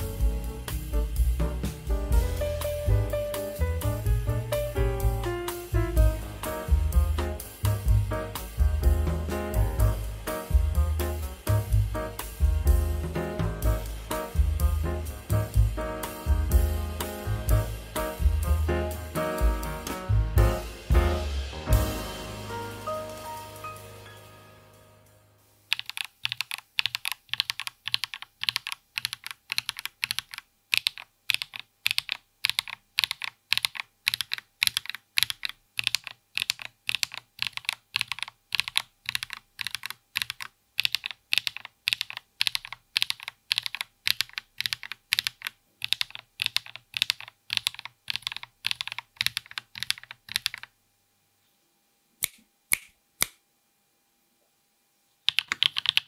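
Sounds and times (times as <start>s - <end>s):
mechanical keyboard keys clicking: 25.7s - 50.7s, 55.3s - 56.0s.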